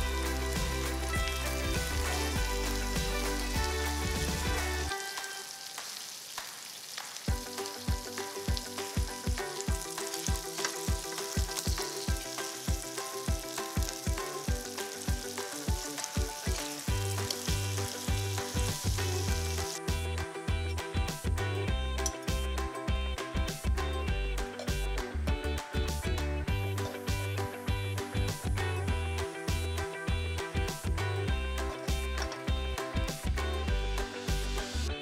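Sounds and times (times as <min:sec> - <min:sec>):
background music with beat: 0:00.0 - 0:06.5, 0:07.2 - 0:35.0
fritters sizzling in oil: 0:00.0 - 0:22.7.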